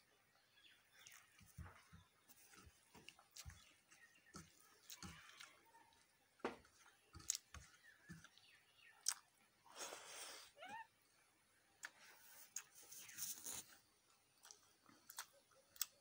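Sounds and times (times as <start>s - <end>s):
fingers squeezing food on steel plate: 0.9s - 9.2s
chewing: 1.0s - 9.3s, 14.4s - 16.0s.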